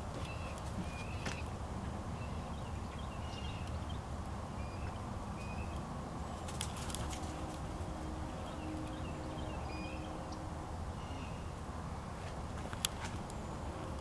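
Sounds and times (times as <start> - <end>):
quick run of clicks: 6.5 - 7.4.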